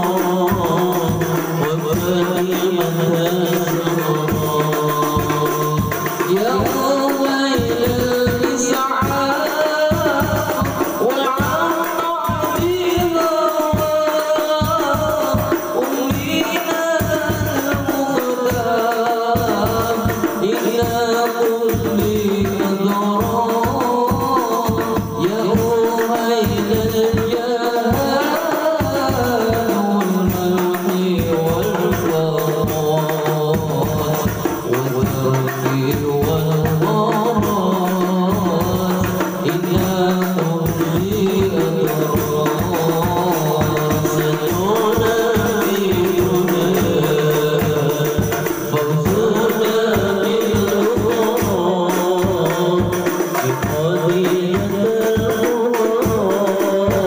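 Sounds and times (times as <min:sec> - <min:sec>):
frame drums beating: 0:00.0 - 0:57.0
men singing into microphones: 0:00.0 - 0:57.0.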